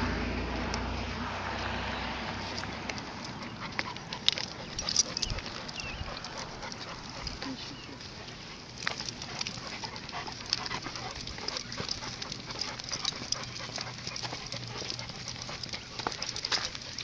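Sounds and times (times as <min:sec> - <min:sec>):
dogs panting: 0:02.2 - 0:17.0
collar chain jingling: 0:02.4 - 0:17.0
light clicks of footsteps: 0:02.4 - 0:17.0.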